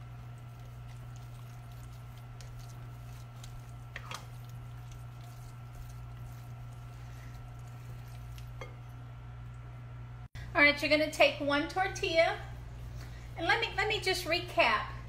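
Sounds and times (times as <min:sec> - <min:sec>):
spatula stirring wet mixture: 0:00.0 - 0:09.0
steady low hum: 0:00.0 - 0:15.0
spatula scraping bowl: 0:00.2 - 0:08.8.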